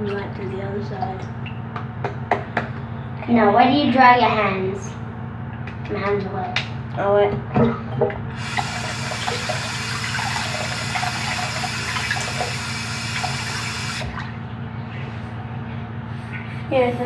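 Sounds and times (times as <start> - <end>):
water running from sink tap: 8.4 - 14.2.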